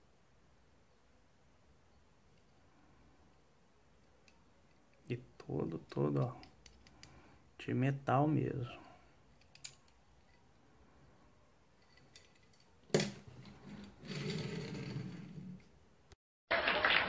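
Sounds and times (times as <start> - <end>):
toy car rolling on wood: 11.8 - 15.7.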